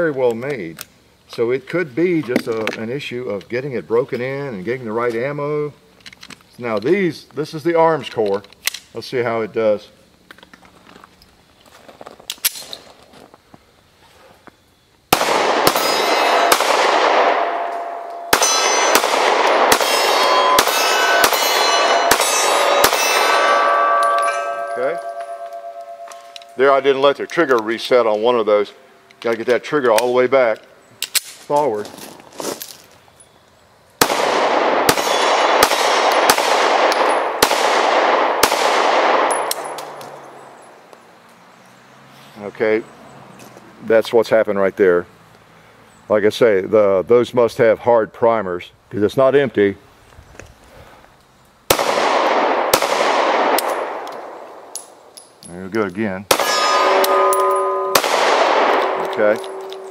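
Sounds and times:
pistol shots: 15.1 - 27.8, 34.0 - 40.4, 51.7 - 55.0, 56.3 - 59.9
steel targets ringing: 15.4 - 28.8, 56.3 - 59.9.

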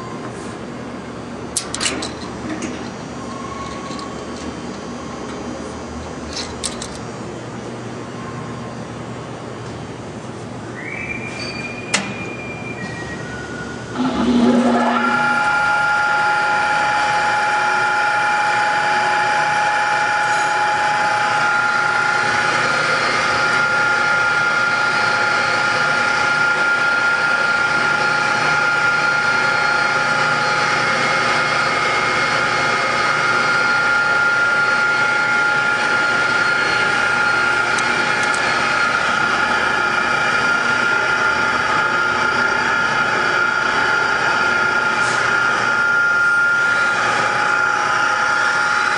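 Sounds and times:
steady high whine: 0.0 - 48.9
mixer motor hum: 13.9 - 48.9.

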